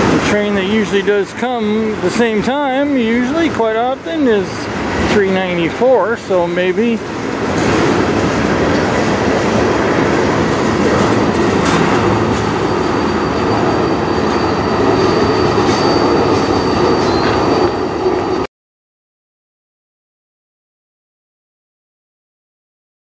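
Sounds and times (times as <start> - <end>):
faint high whine: 0.0 - 18.5
train wheels rumbling on rails: 0.0 - 18.5.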